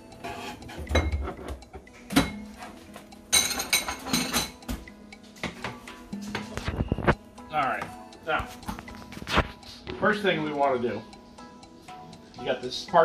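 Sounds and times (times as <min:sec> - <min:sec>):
dishes knocking and clinking: 0:00.6 - 0:07.1.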